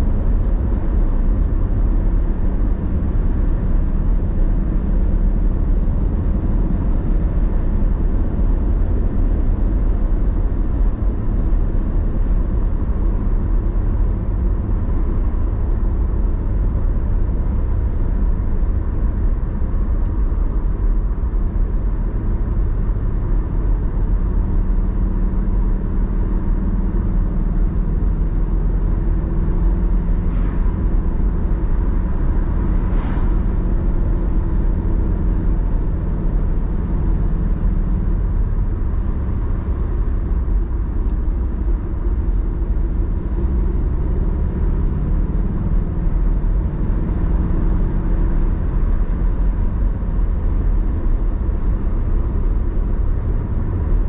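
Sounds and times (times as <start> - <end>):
car engine and tyre rumble: 0.0 - 54.0
brief hissing: 30.3 - 30.7.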